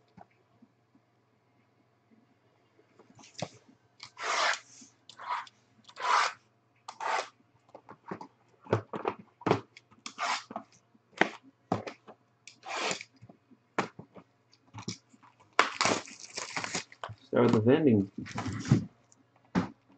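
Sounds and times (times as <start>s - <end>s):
plastic wrap and cardboard rustling: 14.8s - 18.9s.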